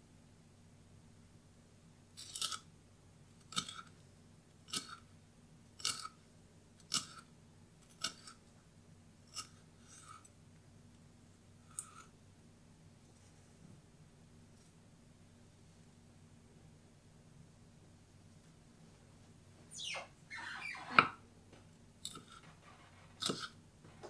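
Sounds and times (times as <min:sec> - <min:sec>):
knife slicing chilli on board: 0:23.2 - 0:23.5.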